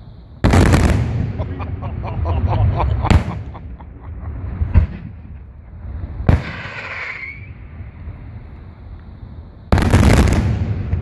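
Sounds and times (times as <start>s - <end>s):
firework bangs and crackle: 0.0s - 11.0s.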